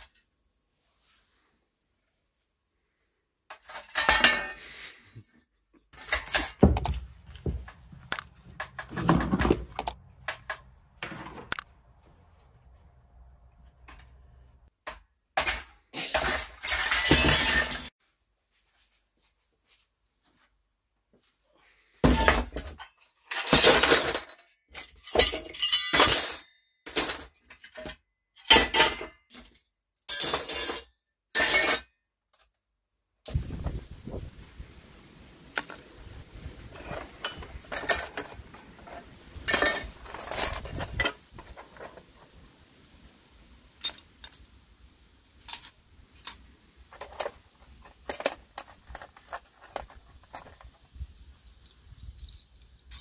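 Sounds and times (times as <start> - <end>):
metal scrap clattering: 3.5 - 4.8, 6.0 - 7.8, 15.4 - 17.9, 22.0 - 31.9, 36.6 - 42.2, 45.4 - 50.8.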